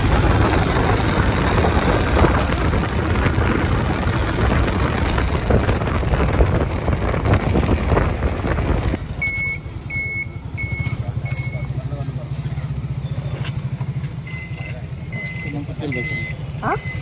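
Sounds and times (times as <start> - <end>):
wind buffeting microphone: 0.0 - 9.0
vehicle rumble: 0.0 - 17.0
electronic beeper: 9.2 - 11.8, 14.2 - 17.0.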